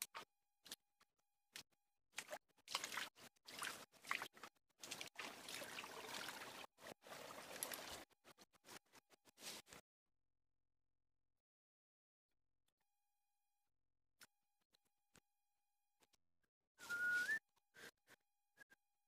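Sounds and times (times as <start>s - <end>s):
forest stream trickling: 2.2s - 8.1s.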